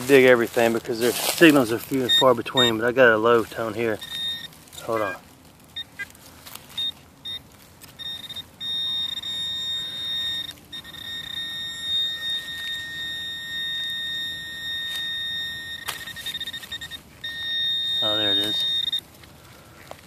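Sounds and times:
continuous high tone: 0:00.0 - 0:20.0
short beeps: 0:01.9 - 0:02.9, 0:03.9 - 0:05.2, 0:05.8 - 0:06.1, 0:06.7 - 0:19.1.

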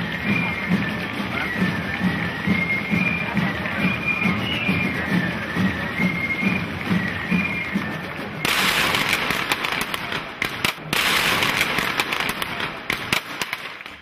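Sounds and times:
firecrackers crackling: 0:00.0 - 0:14.0
marching music with pipe and drum: 0:00.0 - 0:14.0.

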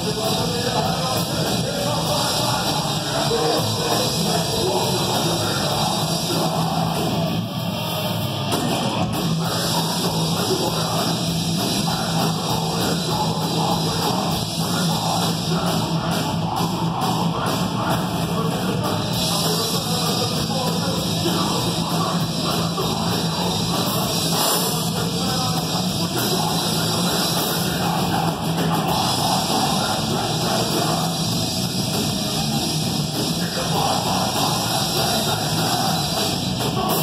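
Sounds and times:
drum kit: 0:00.0 - 0:37.0
electric guitars: 0:00.0 - 0:37.0
vocalist singing: 0:00.0 - 0:37.0.

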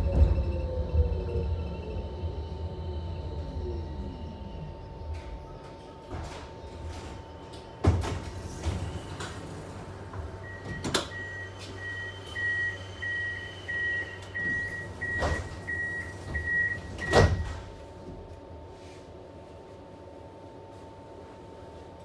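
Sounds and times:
tram electrical hum: 0:00.0 - 0:22.0
door warning beeper: 0:10.4 - 0:17.7
clunks of doors: 0:14.2 - 0:17.8.

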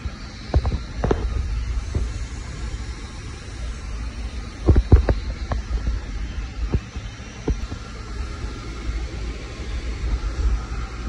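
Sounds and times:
steady low rumble: 0:00.0 - 0:11.0
dull thumps: 0:04.3 - 0:08.1.

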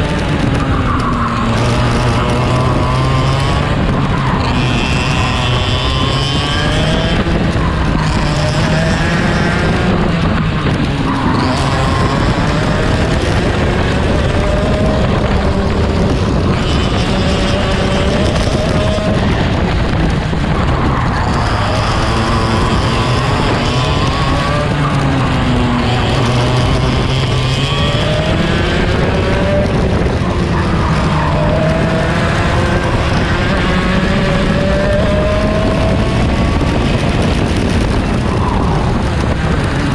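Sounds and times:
kart engine revving: 0:00.0 - 0:39.9.

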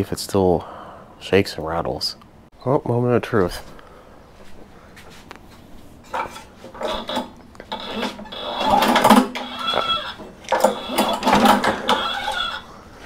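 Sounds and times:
lawn mower engine running: 0:06.7 - 0:12.5
lawn mower pull-start: 0:06.7 - 0:12.6.

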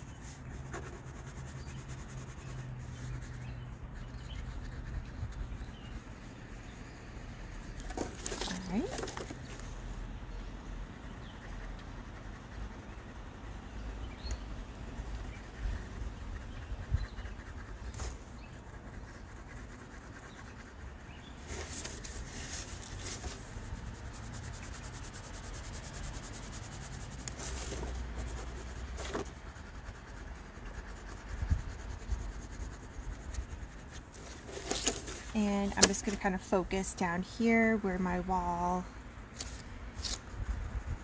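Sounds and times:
pencil rubbing on paper: 0:00.0 - 0:09.8, 0:10.6 - 0:38.8, 0:39.4 - 0:41.0
paper sliding and rustling: 0:34.1 - 0:36.1, 0:39.3 - 0:40.3.

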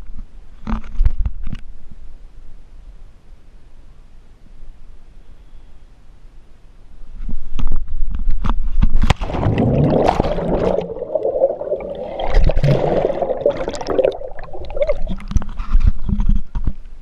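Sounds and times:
splash into water: 0:09.0 - 0:15.4
underwater bubbling and gurgling: 0:09.0 - 0:16.6.

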